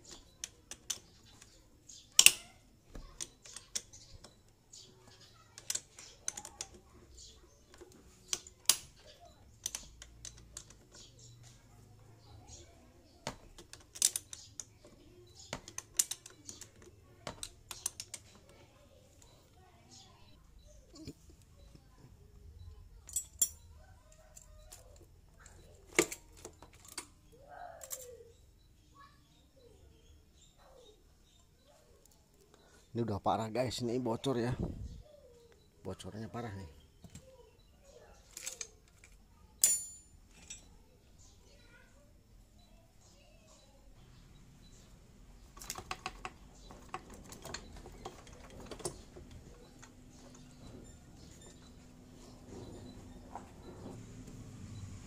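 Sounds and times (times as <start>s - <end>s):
sharp metallic clicks and taps: 0.0s - 4.5s, 13.2s - 18.6s, 45.5s - 50.5s
metal clinks and knocks: 23.0s - 27.2s, 38.3s - 40.8s.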